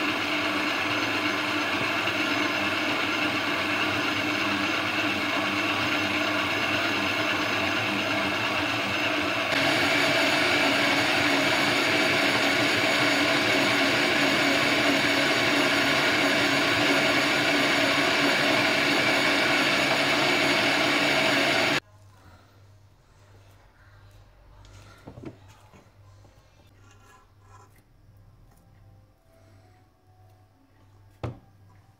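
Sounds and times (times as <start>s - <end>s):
stand mixer motor humming: 0.0s - 21.8s.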